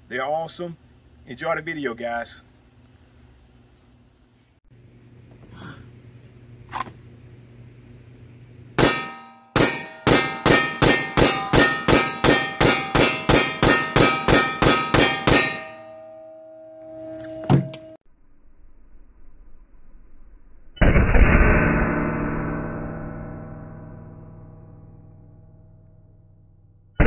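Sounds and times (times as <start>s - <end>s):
ringing metallic clangs: 8.8s - 18.0s.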